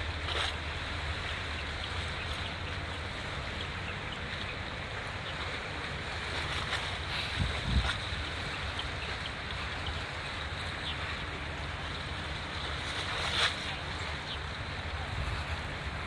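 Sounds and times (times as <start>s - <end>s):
ship engine low rumble: 0.0s - 16.0s
water washing: 0.0s - 16.0s
wind on microphone: 6.5s - 9.0s.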